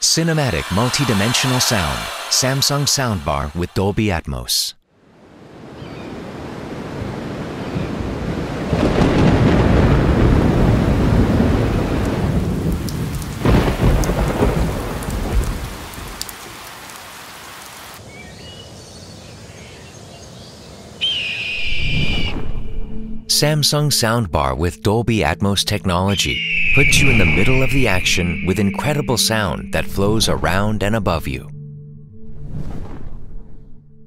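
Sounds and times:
high call: 0:00.0 - 0:04.1, 0:26.1 - 0:30.0
heavy rain: 0:06.2 - 0:18.1
rolling thunder: 0:08.0 - 0:16.4, 0:26.4 - 0:29.2
sharp thunderclap: 0:08.6 - 0:16.3
dripping water: 0:12.6 - 0:18.0.

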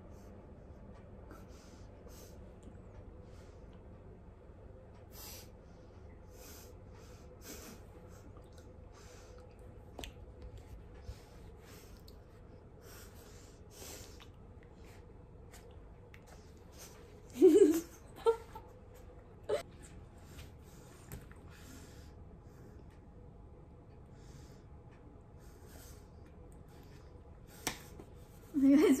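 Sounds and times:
faint breaths: 0:00.0 - 0:04.0, 0:04.9 - 0:09.9, 0:10.5 - 0:15.6, 0:20.1 - 0:23.2, 0:24.0 - 0:28.5.

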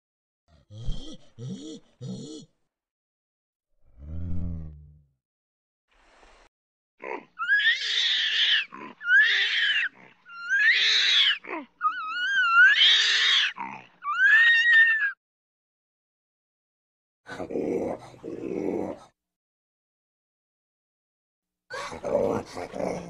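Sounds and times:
orangutan screaming: 0:07.4 - 0:15.2.

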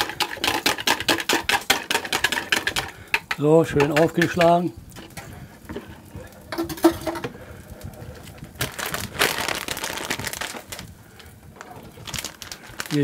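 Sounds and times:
bowl and whisk clattering: 0:00.0 - 0:04.6
plastic packet crinkling: 0:08.2 - 0:13.0.

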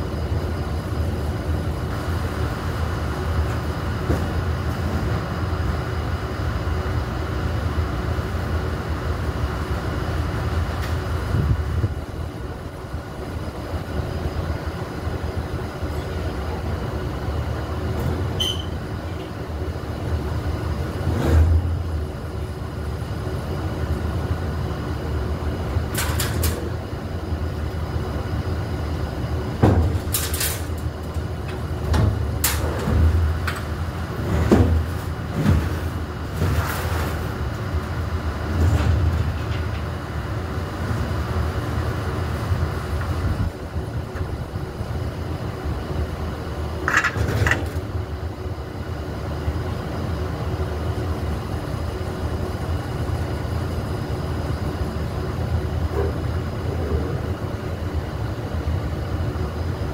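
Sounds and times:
faint machine hum: 0:00.0 - 0:59.9.

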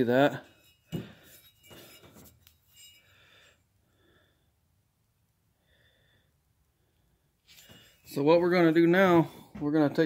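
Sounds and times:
faint handling noises: 0:00.4 - 0:03.1.

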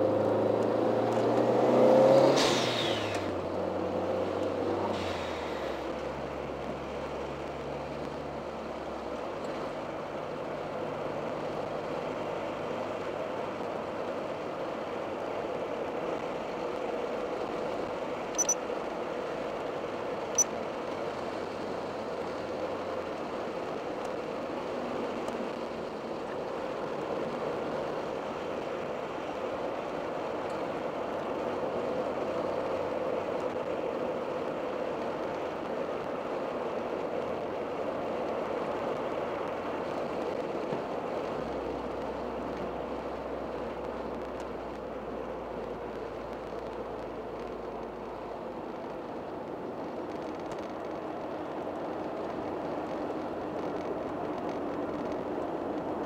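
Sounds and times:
car engine cruising: 0:00.0 - 0:35.7
tyre and road noise: 0:00.0 - 0:56.0.

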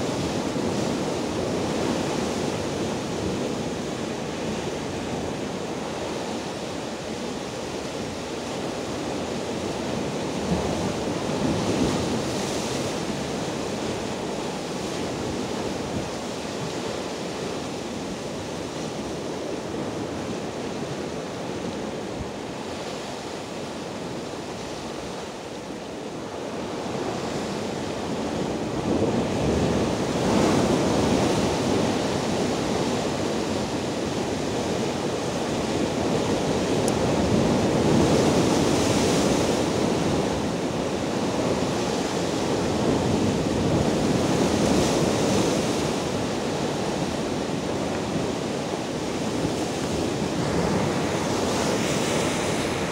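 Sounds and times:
sea waves breaking over rocks: 0:26.6 - 0:52.9.

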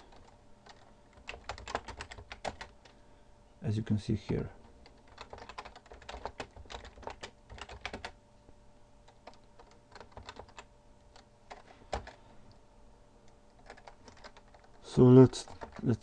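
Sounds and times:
keyboard typing: 0:00.0 - 0:03.0, 0:04.3 - 0:08.2, 0:09.0 - 0:12.2, 0:13.3 - 0:16.0.

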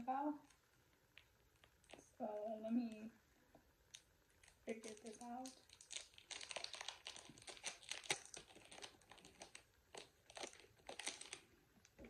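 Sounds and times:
plastic packet crinkling: 0:00.4 - 0:02.0, 0:03.9 - 0:11.5.

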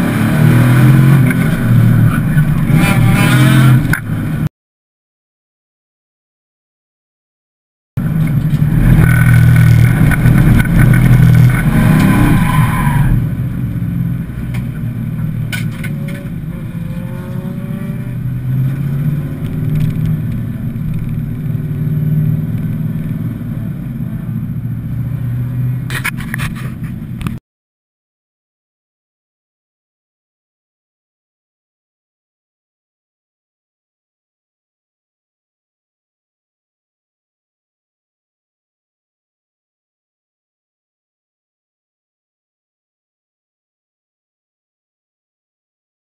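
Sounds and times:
tires squealing: 0:00.0 - 0:04.1, 0:08.2 - 0:13.3
car engine revving from inside cabin: 0:02.6 - 0:03.9, 0:15.9 - 0:19.8.

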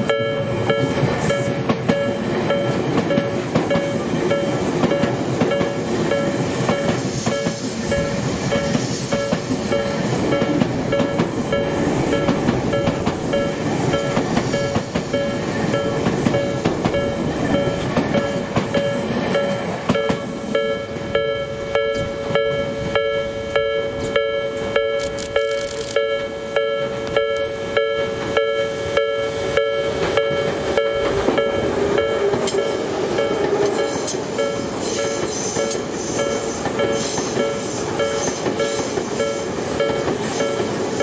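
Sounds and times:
level crossing warning bells: 0:00.0 - 0:41.0
train wheels rumbling on rail: 0:00.0 - 0:41.0.

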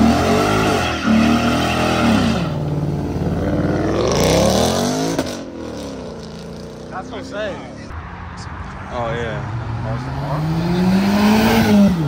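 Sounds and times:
car engine revving hard: 0:00.0 - 0:06.0, 0:10.0 - 0:12.0.

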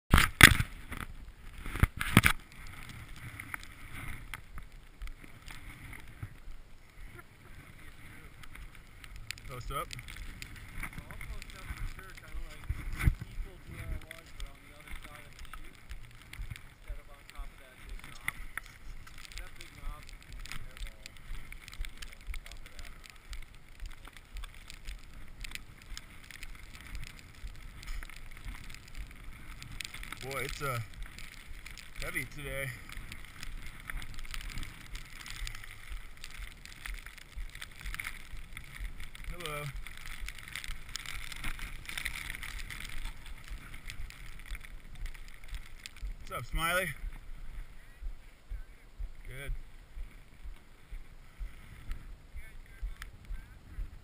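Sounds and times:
ski pole clicks: 0:00.1 - 0:06.3, 0:17.8 - 0:47.1
wind rumble on microphone: 0:00.1 - 0:54.0
camera handling bumps: 0:01.7 - 0:02.4.

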